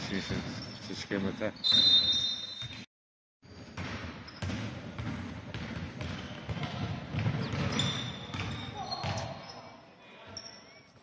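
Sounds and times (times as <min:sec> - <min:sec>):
basketball bouncing on hardwood: 0:03.7 - 0:09.3.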